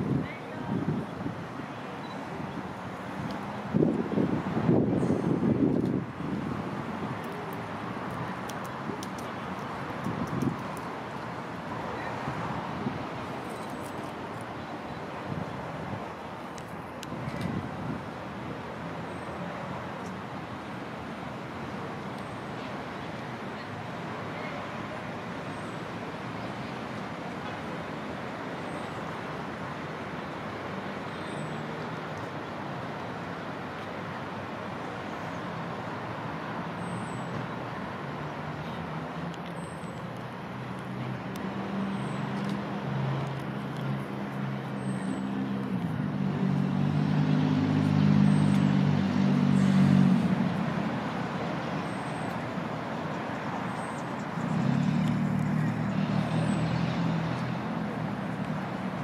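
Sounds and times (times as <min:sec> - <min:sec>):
road traffic noise: 0:00.0 - 0:59.0
vehicle engine hum: 0:38.3 - 0:59.0.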